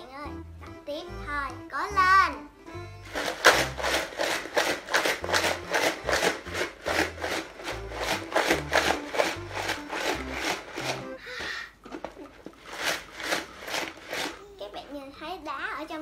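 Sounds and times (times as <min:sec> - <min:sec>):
background music: 0:00.0 - 0:11.4
ice rattling in plastic jar: 0:03.1 - 0:11.1, 0:12.0 - 0:14.8.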